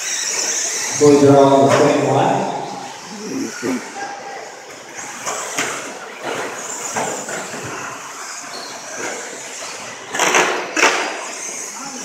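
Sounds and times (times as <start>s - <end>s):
rc truck motor whine: 0.0s - 2.0s, 4.4s - 12.0s.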